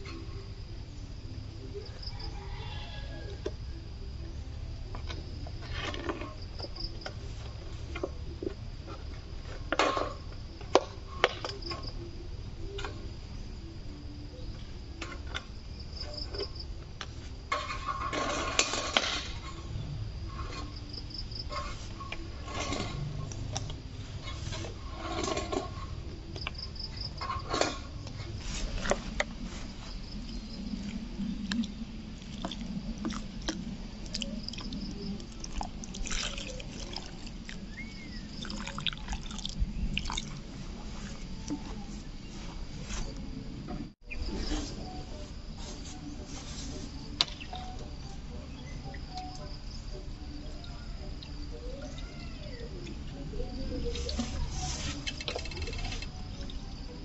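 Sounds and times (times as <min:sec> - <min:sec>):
insects buzzing: 0:00.0 - 0:57.0
rustling: 0:27.2 - 0:31.1, 0:44.2 - 0:47.7, 0:53.9 - 0:56.2
plastic bottles crackling: 0:32.2 - 0:41.3.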